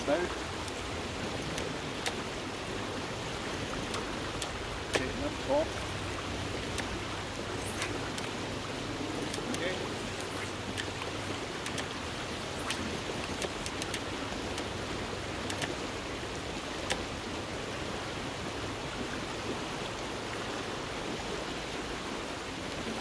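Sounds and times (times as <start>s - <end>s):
river rushing: 0.0s - 23.0s
faint ticks: 0.6s - 0.8s, 1.4s - 2.3s, 3.8s - 5.1s, 6.6s - 7.0s, 9.2s - 14.7s, 15.4s - 15.9s, 16.8s - 17.1s.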